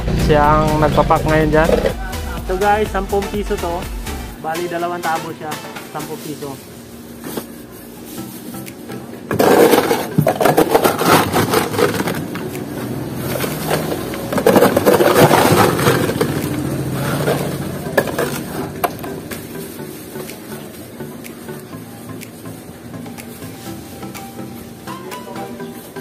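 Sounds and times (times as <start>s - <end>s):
ice cubes clattering: 9.3s - 12.3s, 13.3s - 18.5s
plastic bag rustling: 9.4s - 20.0s.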